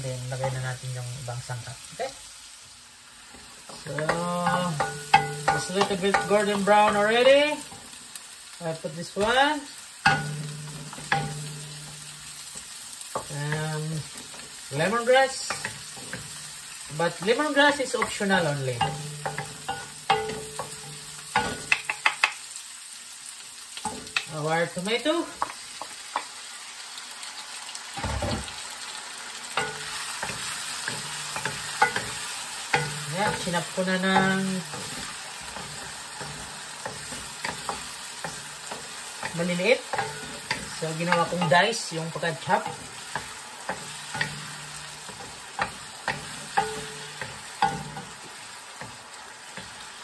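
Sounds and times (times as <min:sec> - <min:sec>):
oil sizzling in a wok: 0:00.0 - 0:50.0
spatula knocking and scraping pan: 0:03.3 - 0:08.0, 0:10.0 - 0:22.4, 0:29.6 - 0:50.0.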